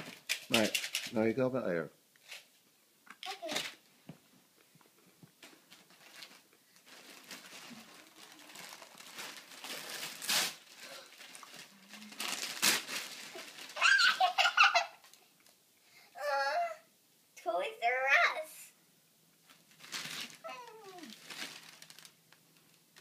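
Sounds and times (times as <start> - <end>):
wrapping paper crinkling and tearing: 0.0 - 1.2, 5.4 - 15.2, 19.5 - 23.0
girl laughing excitedly: 13.8 - 15.1.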